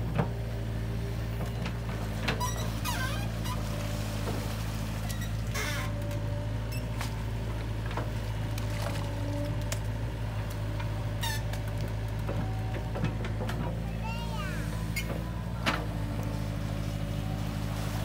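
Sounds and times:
bucket working in wet mud: 0:00.0 - 0:18.0
excavator diesel engine running: 0:00.0 - 0:18.0
short squeaks and clicks: 0:02.3 - 0:03.6, 0:05.0 - 0:07.1, 0:11.2 - 0:11.6.

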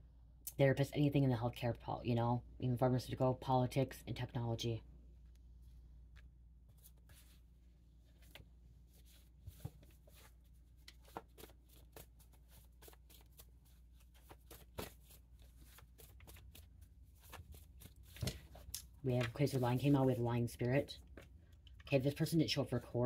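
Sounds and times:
cards shuffling: 0:09.0 - 0:21.4.

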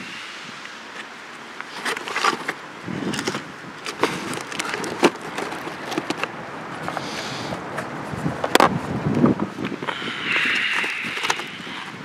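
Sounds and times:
crunching footsteps on stones: 0:01.0 - 0:07.1.

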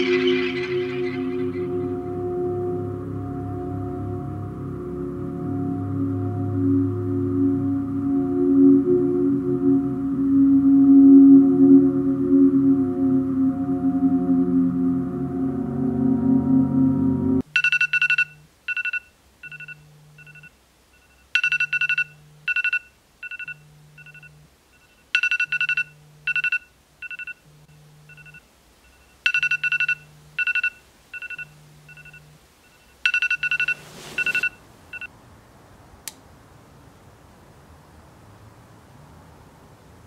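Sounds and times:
quick high ringtone beeps: 0:00.0 - 0:01.9, 0:17.6 - 0:27.4, 0:28.1 - 0:35.1
low pulsing tone: 0:00.0 - 0:17.4
sustained musical tones: 0:00.0 - 0:17.4
short rush of noise: 0:33.5 - 0:34.6.

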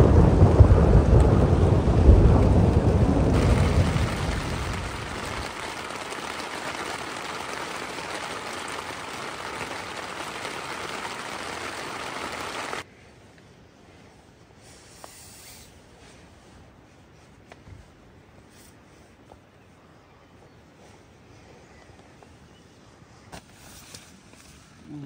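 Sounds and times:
heavy rain on a tent: 0:00.0 - 0:12.9.

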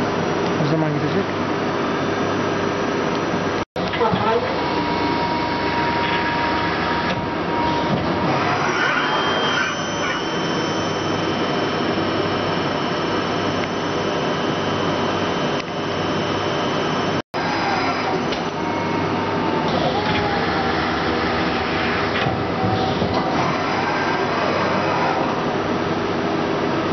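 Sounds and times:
lathe machine hum and hiss: 0:04.4 - 0:26.9
high steady whine: 0:04.5 - 0:17.2.

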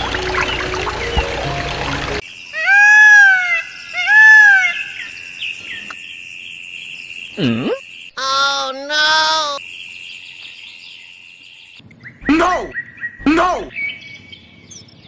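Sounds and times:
water trickling: 0:00.0 - 0:02.2
loud arching animal calls: 0:02.5 - 0:05.2, 0:07.3 - 0:09.6, 0:12.2 - 0:13.7.

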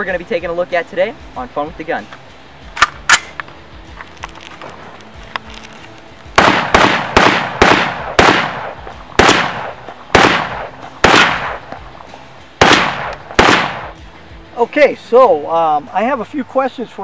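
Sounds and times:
rifle shots with echo: 0:06.4 - 0:12.0, 0:12.6 - 0:14.0.

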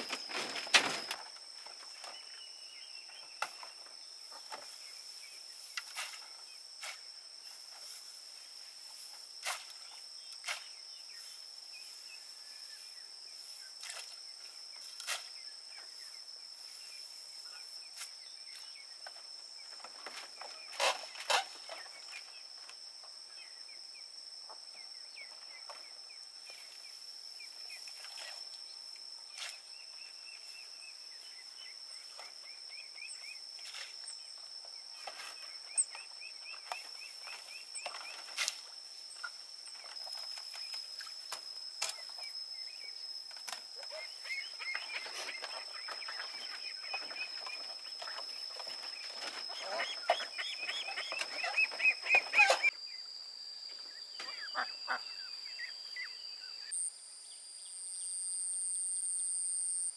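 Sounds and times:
high insect drone: 0:00.0 - 0:59.9
bird chirps: 0:43.8 - 0:53.1, 0:53.8 - 0:56.8.

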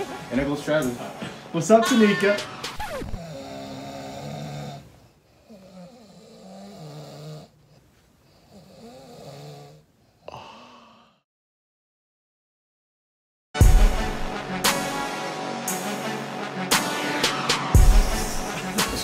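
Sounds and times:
person snoring: 0:02.8 - 0:11.3.

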